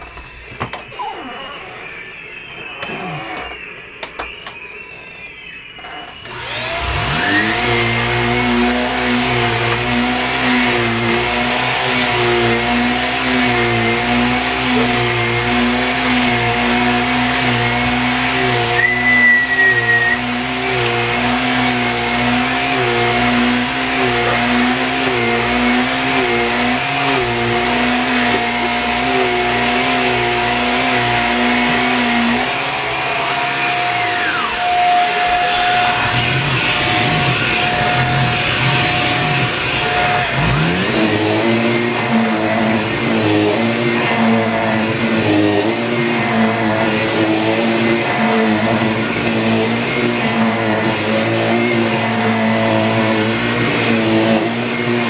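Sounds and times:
vacuum cleaner whining: 0.0 - 55.0
wavering pitched sound: 27.6 - 55.0.

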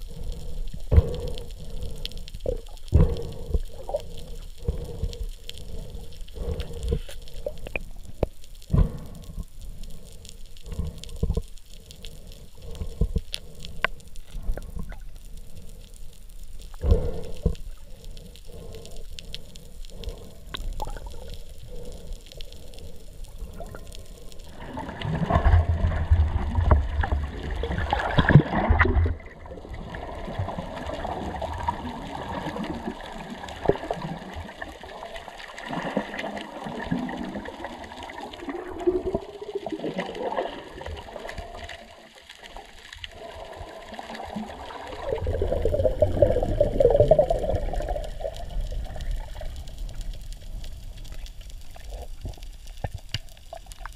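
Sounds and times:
sea water gurgling and sloshing: 0.0 - 53.9.

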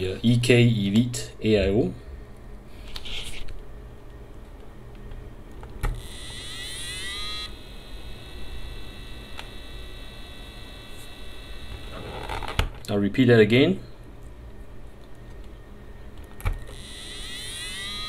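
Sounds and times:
pump whine: 5.8 - 12.7, 15.6 - 18.0.

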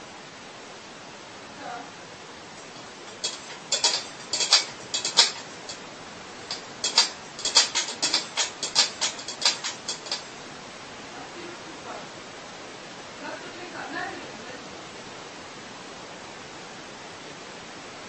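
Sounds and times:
steady hiss: 0.0 - 18.0
paw clinking in metal bowl: 2.6 - 5.8, 6.4 - 10.3.

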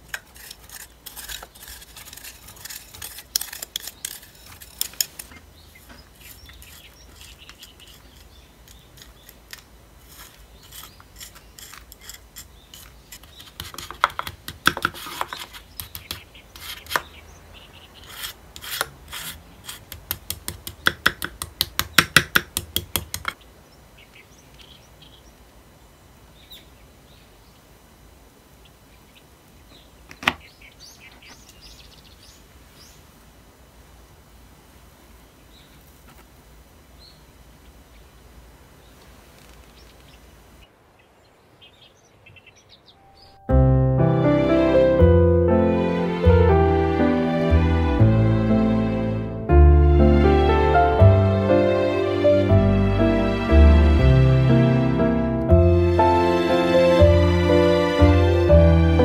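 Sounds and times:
spoon scraping glass bowl: 0.2 - 5.4, 6.2 - 9.4, 10.1 - 14.0.

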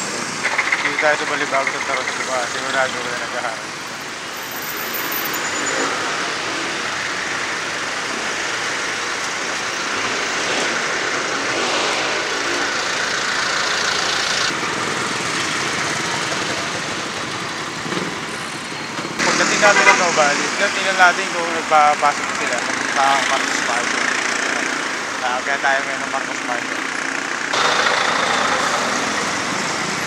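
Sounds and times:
motor vehicle engines running: 0.0 - 30.0
wind and road noise: 0.0 - 30.0.

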